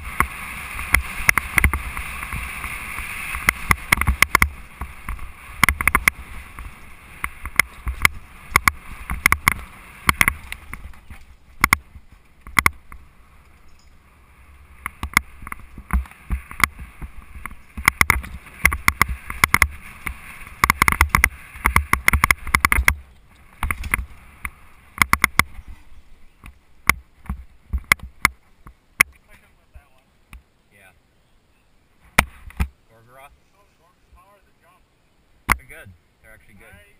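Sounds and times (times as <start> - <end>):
bike clattering over bumps: 0.0 - 13.9, 14.8 - 25.6
wind on microphone: 14.1 - 26.6.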